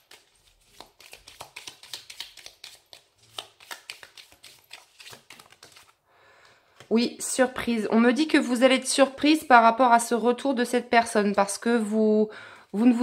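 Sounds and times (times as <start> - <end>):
cards shuffling: 0.0 - 6.0.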